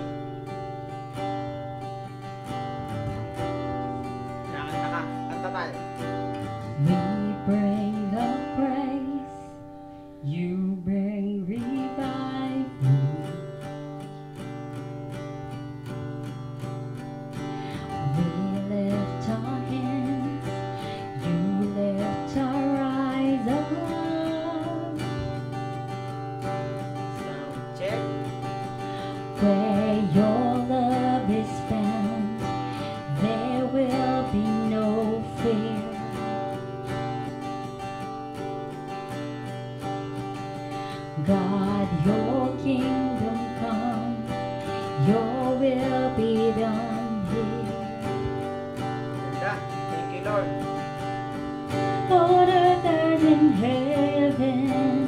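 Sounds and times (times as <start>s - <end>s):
acoustic guitar strumming: 0.0s - 55.0s
woman singing into microphone: 6.4s - 13.8s, 17.7s - 26.0s, 29.1s - 37.1s, 40.9s - 48.9s, 51.3s - 55.0s.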